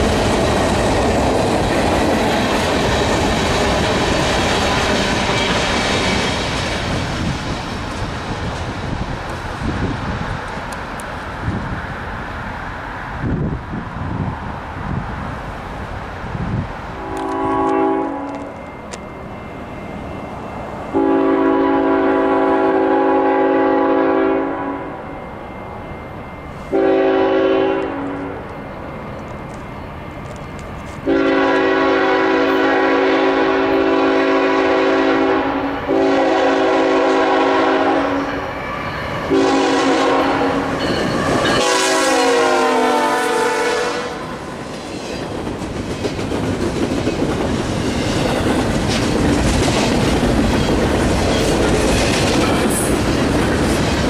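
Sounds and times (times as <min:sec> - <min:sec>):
train wheels clacking over rails: 0:00.0 - 0:11.2, 0:44.2 - 0:54.0
locomotive air horn blasts: 0:17.0 - 0:18.5, 0:20.9 - 0:25.0, 0:26.6 - 0:28.4, 0:31.0 - 0:44.3.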